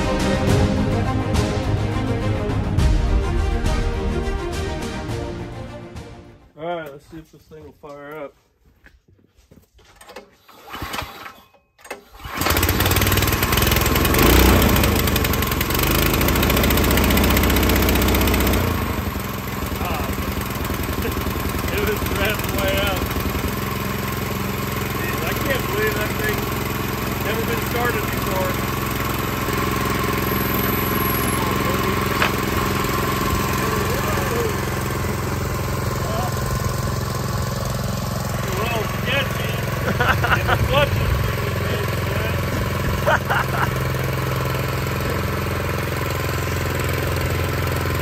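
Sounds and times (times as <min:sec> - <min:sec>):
engine pull-start cord: 0:09.8 - 0:24.2, 0:25.1 - 0:35.4
small engine running: 0:10.3 - 0:48.0.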